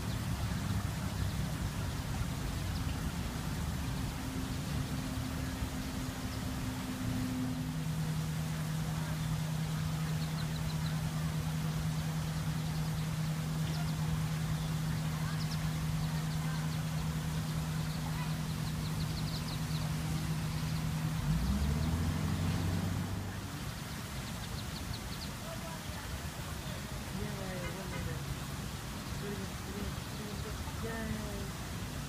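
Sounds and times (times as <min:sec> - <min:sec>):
ducklings peeping: 0:00.0 - 0:31.6
low motor hum: 0:00.0 - 0:32.0.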